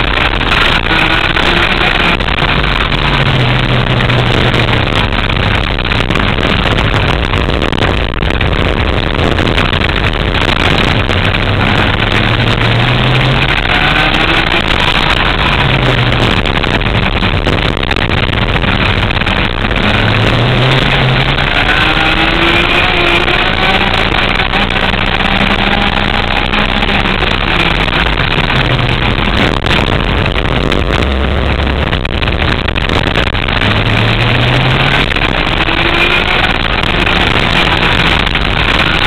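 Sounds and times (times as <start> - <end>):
go-kart engine revving: 0.0 - 39.0
loud rushing noise: 0.0 - 39.0.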